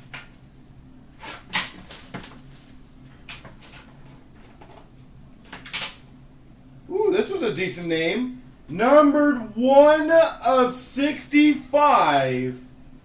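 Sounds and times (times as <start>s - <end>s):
packaging rustle or scrape: 1.2s - 4.2s.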